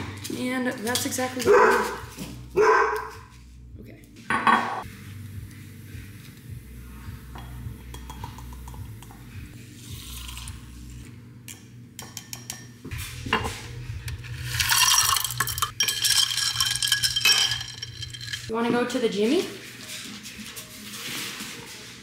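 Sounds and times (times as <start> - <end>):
ice cubes clinking in glass: 14.5 - 18.5
plastic scoop clinking on tub: 14.6 - 18.5.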